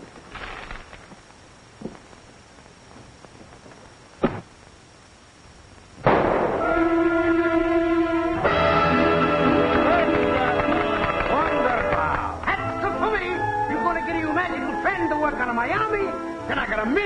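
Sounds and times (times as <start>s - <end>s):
loud crash: 6.0s - 7.0s
sharp bang: 6.0s - 7.0s
film score chord: 6.6s - 11.7s.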